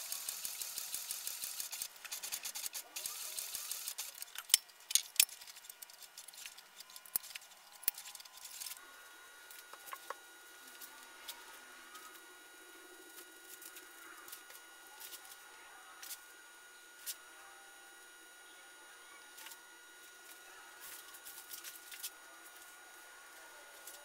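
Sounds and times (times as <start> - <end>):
loud machine clicks: 0.0 - 5.3.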